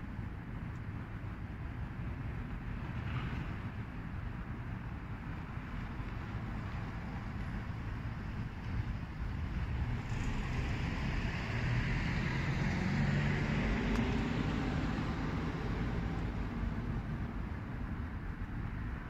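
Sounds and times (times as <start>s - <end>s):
vehicle passing: 9.8s - 17.0s.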